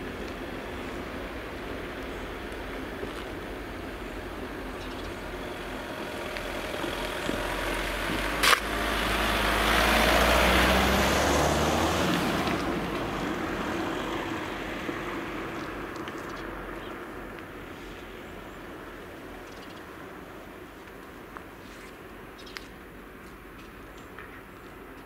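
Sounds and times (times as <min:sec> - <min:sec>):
car driving past: 0:05.5 - 0:15.5.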